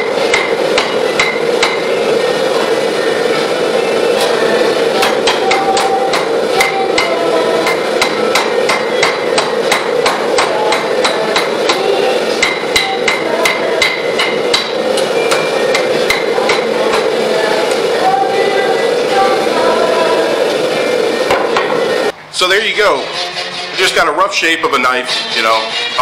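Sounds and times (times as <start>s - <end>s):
hammer striking hot metal on anvil: 0.0s - 2.0s, 5.0s - 17.1s
gas forge burners roaring: 0.0s - 26.0s.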